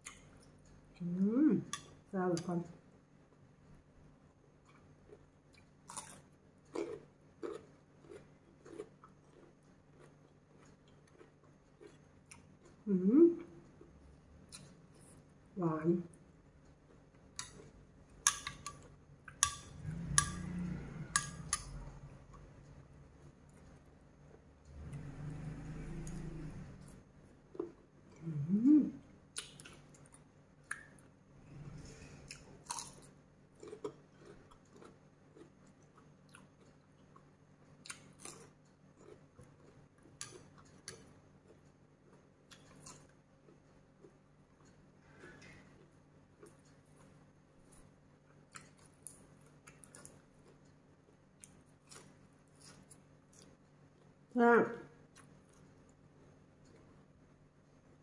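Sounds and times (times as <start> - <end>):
chewing raw vegetables: 4.6 - 15.2, 29.3 - 54.2.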